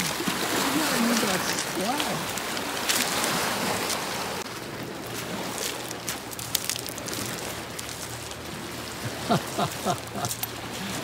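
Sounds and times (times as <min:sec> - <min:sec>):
small waves washing onto pebbles: 0:00.0 - 0:11.0
pebbles clicking: 0:05.1 - 0:08.4.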